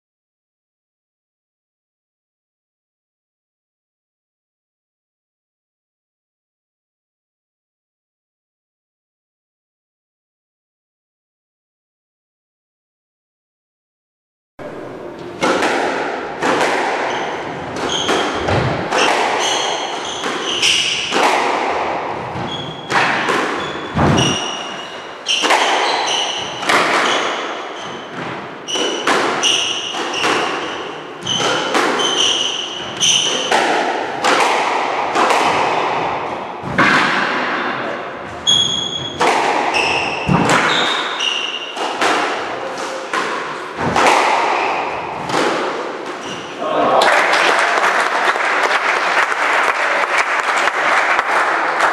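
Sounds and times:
squash ball hitting rackets and walls: 14.6s - 46.6s
shoes squeaking on wooden floor: 17.0s - 21.1s, 22.3s - 33.5s, 38.3s - 41.5s.

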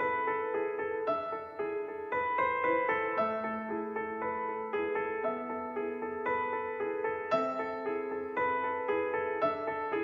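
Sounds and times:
gentle piano melody: 0.0s - 10.0s.

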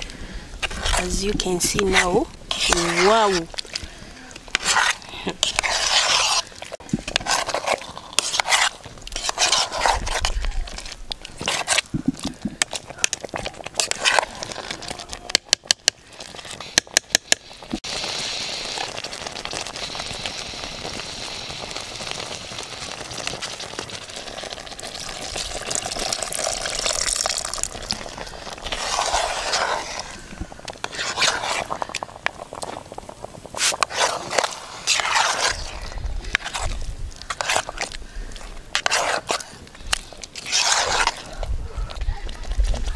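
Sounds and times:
sauce sizzling: 0.0s - 10.0s, 16.1s - 39.4s
metal spoon scraping saucepan: 0.6s - 3.5s, 4.4s - 6.5s, 7.1s - 10.4s.

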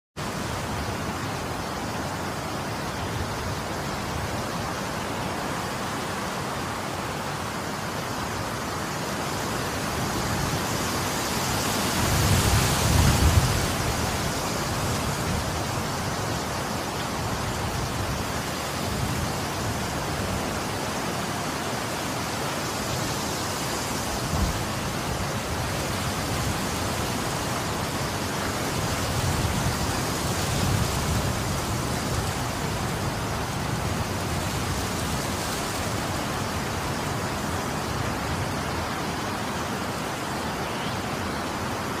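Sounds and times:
wind buffeting microphone: 9.1s - 20.8s, 22.9s - 39.4s.

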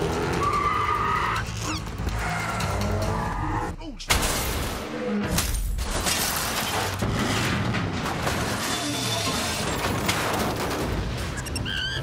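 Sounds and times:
dramatic action music: 0.0s - 6.0s
glass shattering: 4.1s - 11.6s.

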